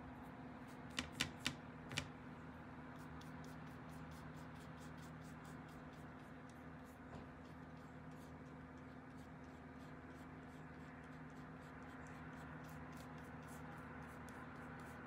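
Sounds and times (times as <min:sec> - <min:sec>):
paintbrush tapping on paper: 0:00.9 - 0:02.1.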